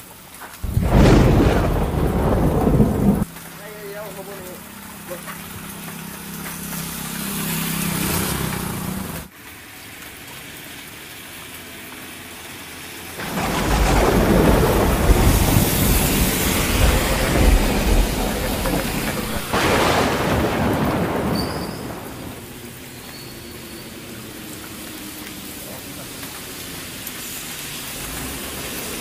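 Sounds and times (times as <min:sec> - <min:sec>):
heavy rain: 0:00.0 - 0:29.0
rumble of thunder: 0:00.6 - 0:03.3, 0:13.2 - 0:22.6.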